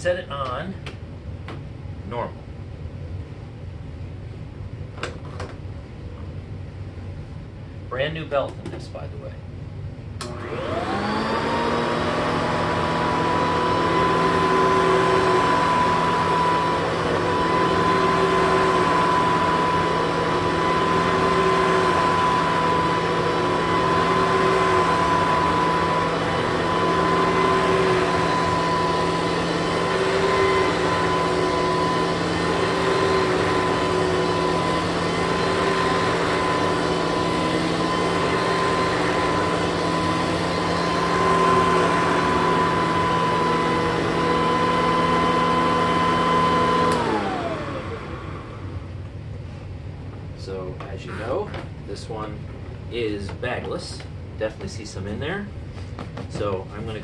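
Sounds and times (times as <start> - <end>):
vacuum cleaner motor whine: 10.2 - 52.3.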